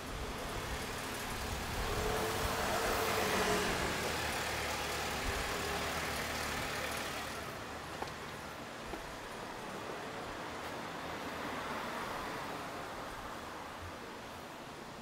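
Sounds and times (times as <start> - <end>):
car driving past: 1.0 - 7.5.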